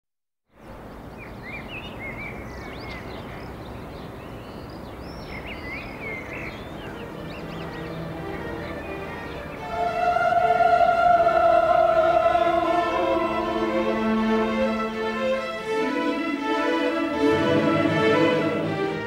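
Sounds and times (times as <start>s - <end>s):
outdoor background hiss: 0.5s - 19.0s
birds chirping and singing: 0.7s - 14.2s.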